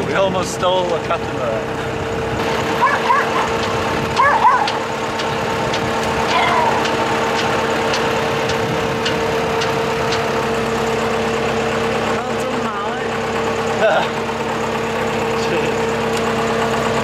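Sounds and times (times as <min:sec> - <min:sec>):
diesel engine idling: 0:00.0 - 0:17.0
small dogs yelping: 0:02.6 - 0:05.1, 0:06.2 - 0:07.1
faint regular ticking: 0:03.5 - 0:11.0.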